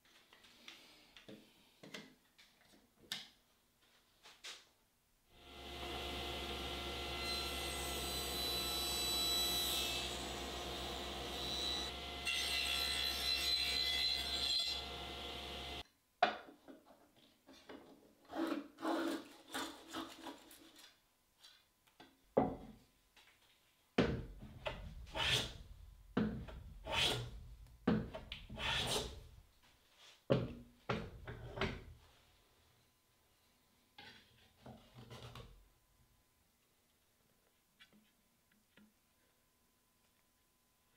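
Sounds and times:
table saw cutting wood: 5.4s - 15.8s.

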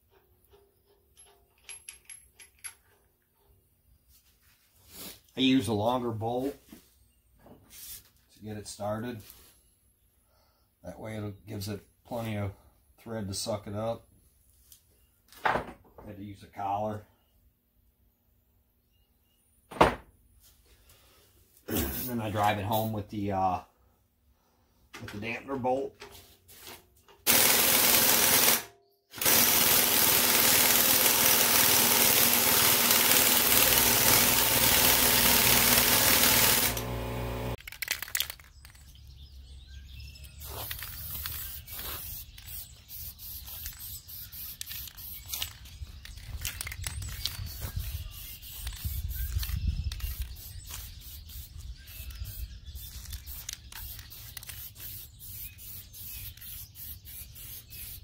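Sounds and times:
pneumatic impact wrench: 27.3s - 37.6s
aerosol spray can hissing: 29.2s - 37.6s, 40.4s - 45.5s, 47.7s - 58.0s.

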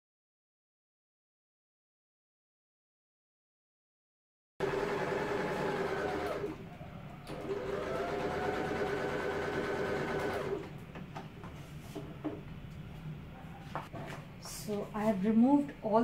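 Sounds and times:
electric sewing machine running: 4.6s - 6.6s, 7.2s - 10.7s.

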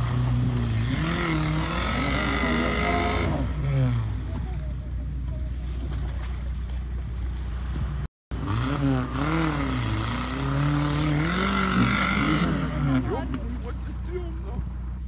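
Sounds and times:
suv engine revving: 0.0s - 4.4s, 8.3s - 13.4s.

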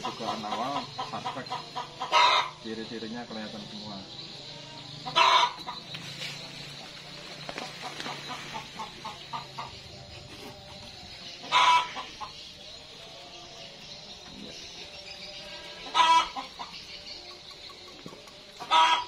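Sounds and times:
chicken cry: 0.0s - 2.6s, 4.7s - 5.8s, 11.4s - 12.3s, 15.6s - 16.7s, 18.6s - 19.0s
chickens clucking: 0.0s - 19.0s.

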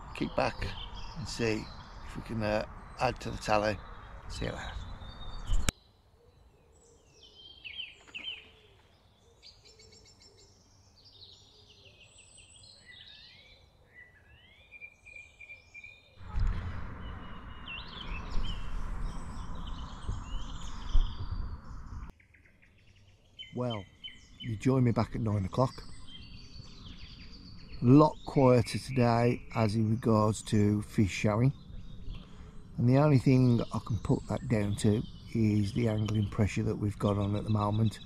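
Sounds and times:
wind on microphone: 0.0s - 5.7s, 16.2s - 22.1s, 31.2s - 32.8s
songbirds chirping and trilling: 0.0s - 38.0s.

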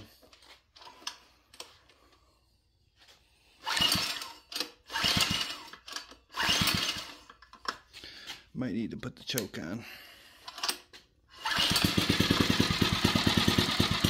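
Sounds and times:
recoil starter rasping whirr: 3.6s - 7.4s, 10.5s - 14.0s.

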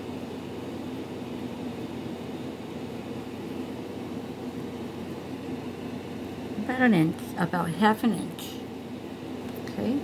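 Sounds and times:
low room hum: 0.0s - 10.0s.

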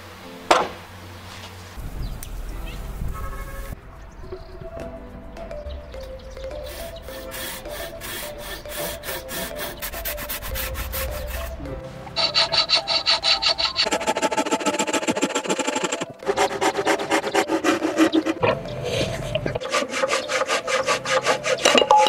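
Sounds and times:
quiet background music: 0.0s - 22.0s
hand saw cutting wood: 6.6s - 11.5s, 12.1s - 22.0s.

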